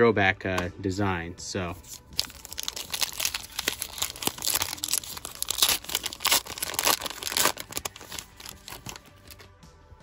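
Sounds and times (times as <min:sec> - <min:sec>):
wrapper crackling and rustling: 0:01.8 - 0:09.4.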